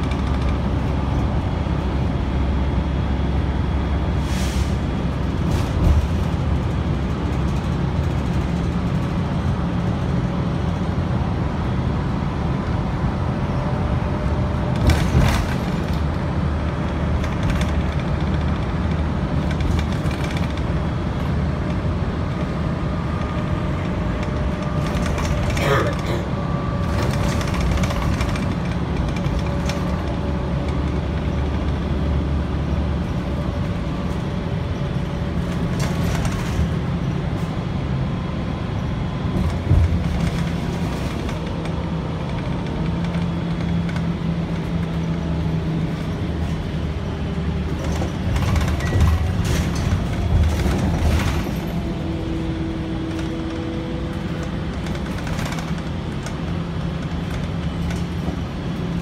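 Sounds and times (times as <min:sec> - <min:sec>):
bus engine and road rumble: 0:00.0 - 0:59.0
knocks and rattles: 0:14.8 - 0:20.8, 0:47.7 - 0:51.9.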